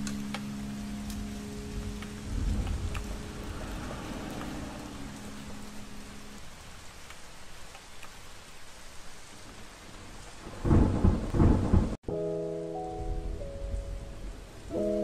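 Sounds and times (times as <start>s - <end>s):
sustained music notes: 0.0s - 6.4s, 12.0s - 15.0s
steady rain hiss: 0.0s - 15.0s
thunder rumble: 0.8s - 6.9s, 9.4s - 12.0s.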